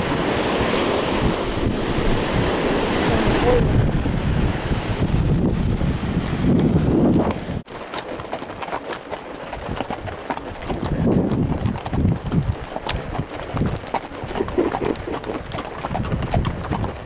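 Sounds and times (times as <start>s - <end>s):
hooves clopping on sand: 6.5s - 17.0s.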